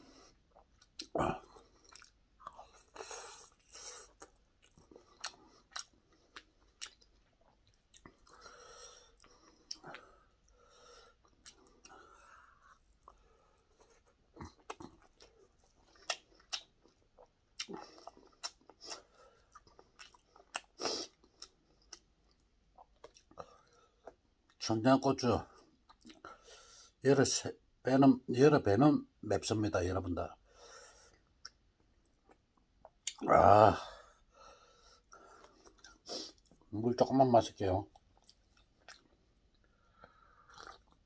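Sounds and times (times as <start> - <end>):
man chewing food: 0.0 - 24.6, 25.5 - 26.9, 30.5 - 33.3, 34.0 - 36.7, 37.9 - 41.0
breathing: 8.2 - 14.0, 19.0 - 19.5, 26.3 - 27.0, 30.4 - 31.3, 33.8 - 36.4, 39.7 - 40.6
mouth smacks and teeth clicks: 14.3 - 23.4, 37.9 - 39.7.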